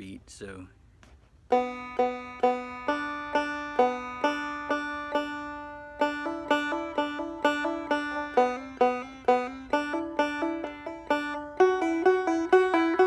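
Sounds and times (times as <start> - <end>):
banjo plucked notes: 1.5 - 13.0.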